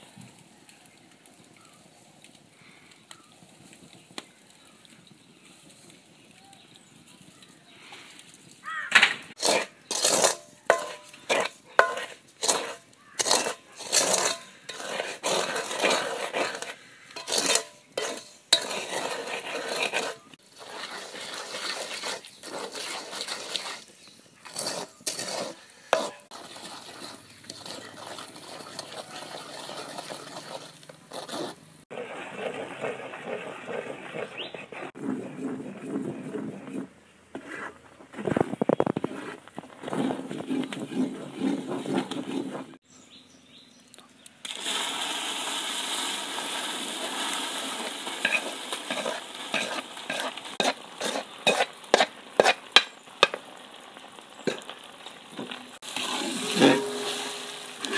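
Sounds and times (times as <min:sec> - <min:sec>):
spatula scraping in a wok: 0:09.3 - 0:42.8, 0:45.8 - 0:53.4, 0:54.4 - 0:57.9.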